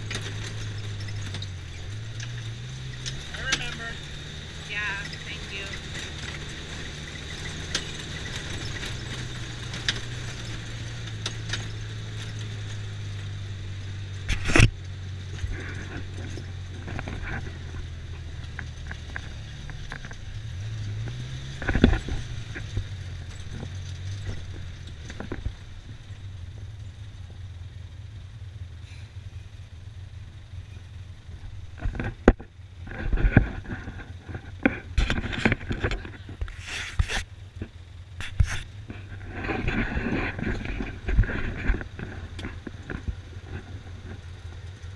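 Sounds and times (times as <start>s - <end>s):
light rattles: 0.0s - 27.9s
vehicle engine droning: 0.0s - 44.9s.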